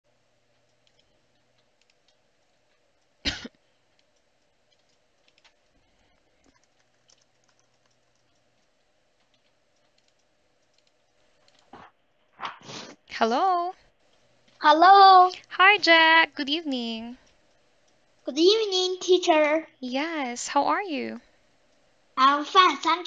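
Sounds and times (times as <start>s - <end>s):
keyboard clicks: 0.5s - 2.2s, 4.0s - 5.8s, 6.4s - 11.7s
computer mouse clicks: 0.5s - 3.1s, 4.0s - 11.7s.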